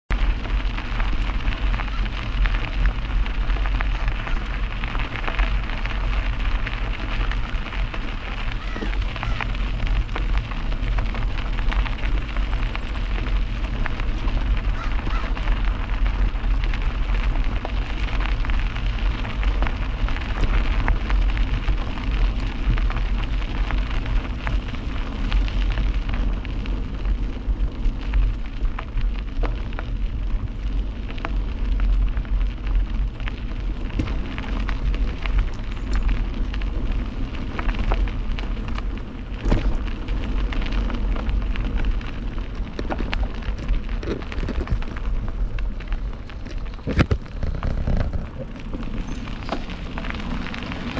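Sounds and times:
bike tyres rolling on gravel: 0.1s - 50.9s
wind noise on microphone: 0.1s - 50.9s.

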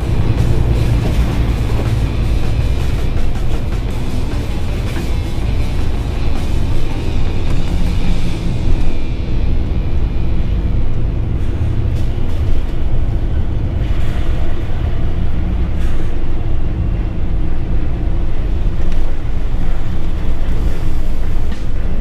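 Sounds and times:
background music: 0.0s - 22.0s
lorry engine and tyres rumbling: 0.0s - 22.0s.

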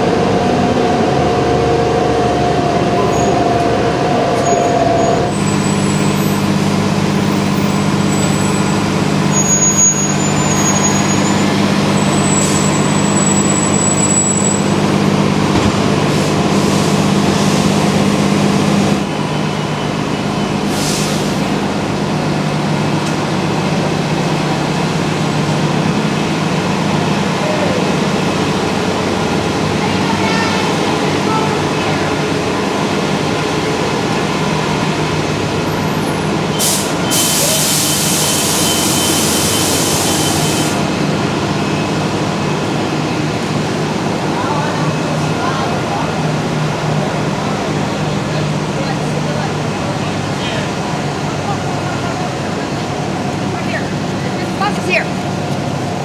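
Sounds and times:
bus engine humming: 0.0s - 56.0s
air hiss: 36.6s - 40.8s.

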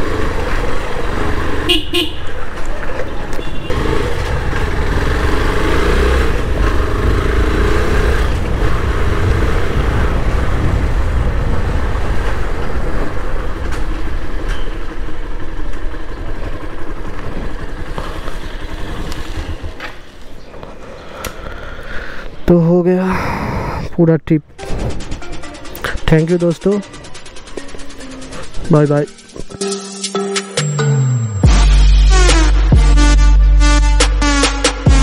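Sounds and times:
motorcycle engine running: 0.0s - 19.8s
wind on microphone: 8.1s - 13.5s.

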